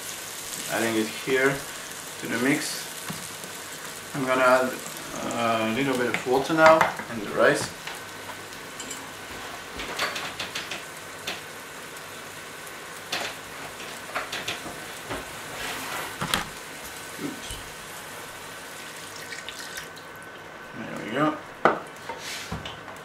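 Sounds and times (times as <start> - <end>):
onion sizzling in oil: 0.0 - 23.0
sharp clicks and knocks: 9.8 - 11.4.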